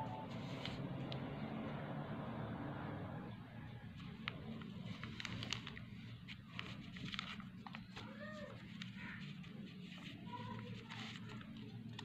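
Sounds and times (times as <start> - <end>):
paper crinkling and folding: 0.0 - 1.1, 3.8 - 12.0.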